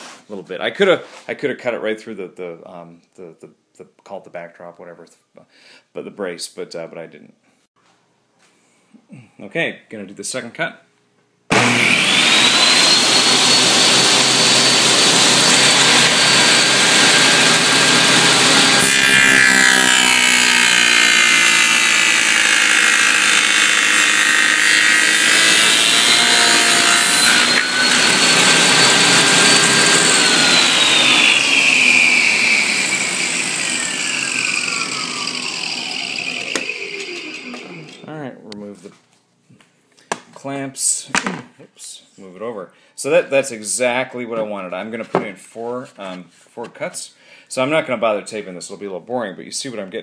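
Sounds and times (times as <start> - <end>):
saw cutting wooden boards: 11.5 - 38.1
table saw whining: 11.5 - 38.1.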